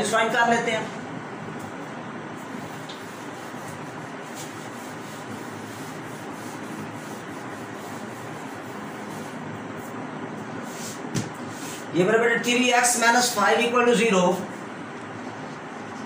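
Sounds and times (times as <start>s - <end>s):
eraser rubbing whiteboard: 2.4s - 10.0s, 10.6s - 11.9s.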